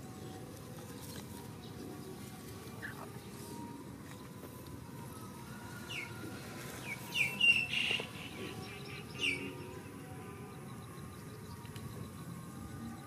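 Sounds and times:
high-pitched chirping calls: 6.8 - 9.6.

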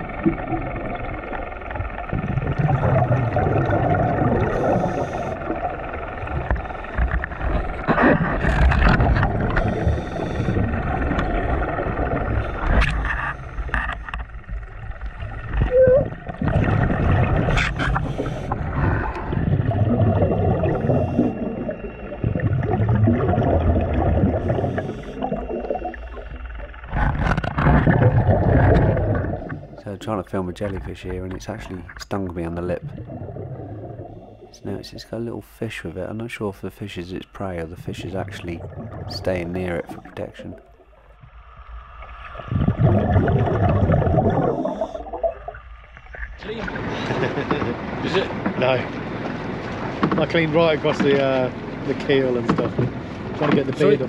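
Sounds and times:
bubbly underwater exhalations: 2.1 - 5.6, 15.4 - 26.2, 26.9 - 29.8, 32.8 - 34.6, 38.3 - 39.2, 42.4 - 45.6.

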